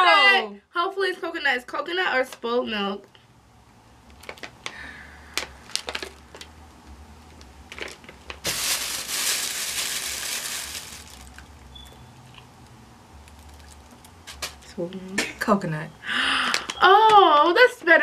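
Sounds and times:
candy pouch crinkling: 0:05.4 - 0:06.5, 0:07.7 - 0:11.7
paper bag rustling: 0:07.8 - 0:11.5.

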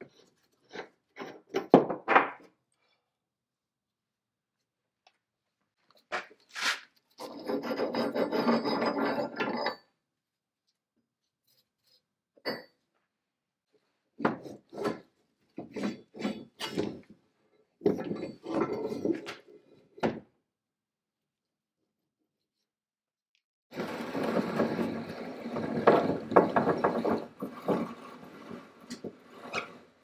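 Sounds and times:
steel chain scraping on wood: 0:06.4 - 0:09.9, 0:23.7 - 0:30.0.

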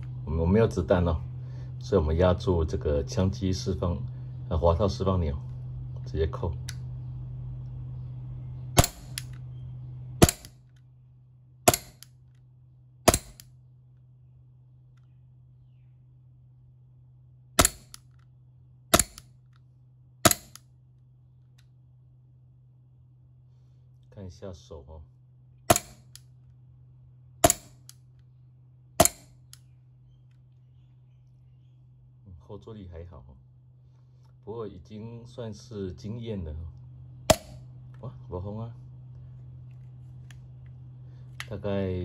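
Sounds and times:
airsoft pistol cracks: 0:08.8 - 0:09.4, 0:10.2 - 0:10.6, 0:11.7 - 0:12.1, 0:13.1 - 0:13.5, 0:17.6 - 0:18.2, 0:18.9 - 0:19.3, 0:20.2 - 0:20.6, 0:25.7 - 0:26.3, 0:27.4 - 0:28.0, 0:29.0 - 0:29.7, 0:37.3 - 0:37.6.

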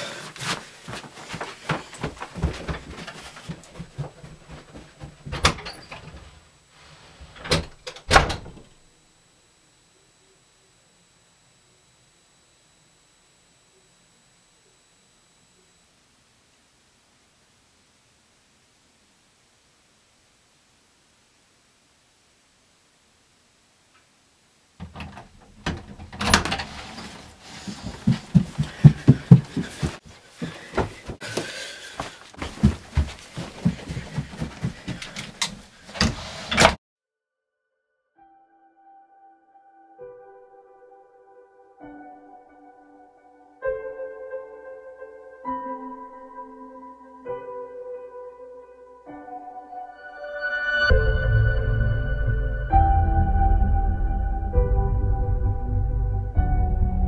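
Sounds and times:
light footsteps: 0:00.0 - 0:08.0, 0:24.8 - 0:36.0
door unlatching and opening: 0:04.0 - 0:08.8, 0:24.8 - 0:27.4, 0:35.1 - 0:36.8.

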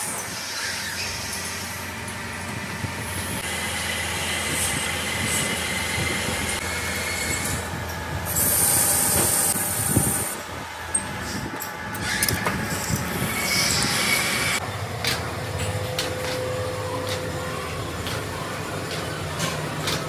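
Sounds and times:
metal lathe cutting with whine: 0:12.0 - 0:14.6.

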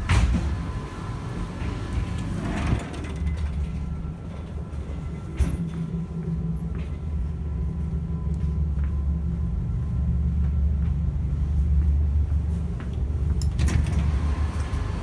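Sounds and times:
train door clattering open: 0:00.0 - 0:00.9, 0:01.5 - 0:07.0, 0:13.4 - 0:15.0
electric train running rumble: 0:00.0 - 0:15.0.

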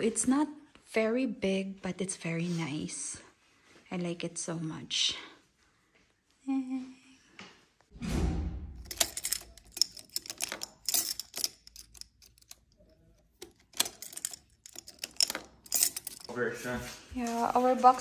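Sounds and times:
key clicking in a door lock: 0:08.8 - 0:16.3
keys clinking: 0:08.8 - 0:16.4.

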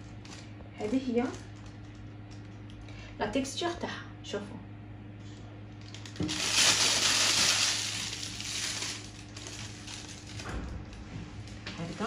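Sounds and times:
plastic piping bag crinkling: 0:00.0 - 0:02.9, 0:05.7 - 0:12.0.

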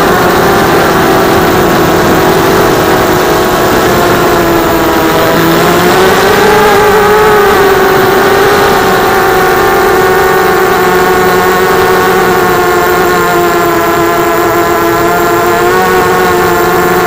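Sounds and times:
drone motors whining: 0:00.0 - 0:17.0.

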